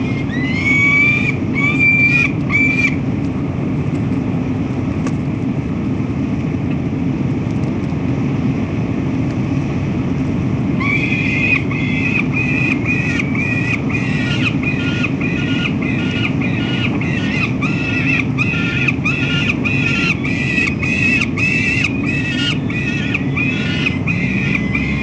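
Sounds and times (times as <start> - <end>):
falcon calling harsh repeated notes: 0.0 - 3.0, 10.8 - 25.0
steady low rumble: 0.0 - 25.0.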